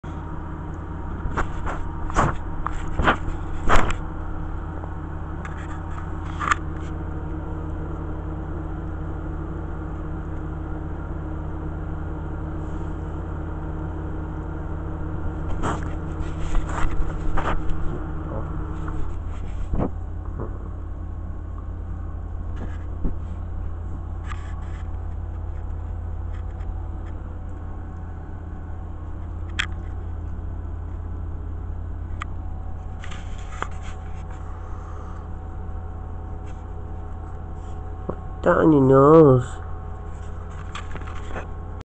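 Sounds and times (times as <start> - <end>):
steady low hum: 0.0 - 41.8
camera scraping and knocking: 1.2 - 4.0, 15.5 - 18.1, 18.7 - 20.0, 32.9 - 34.5.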